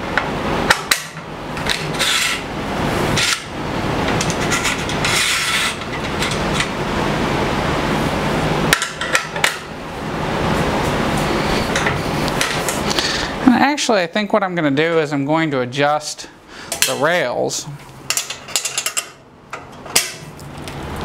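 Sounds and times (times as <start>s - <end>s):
metal parts scraping: 1.6s - 2.5s, 4.2s - 6.7s.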